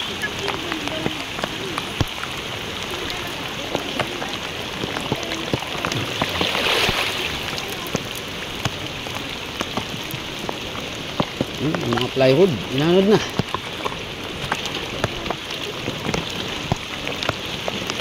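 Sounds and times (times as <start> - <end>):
heavy rain falling: 0.0 - 18.0
raindrops clicking close by: 0.0 - 18.0.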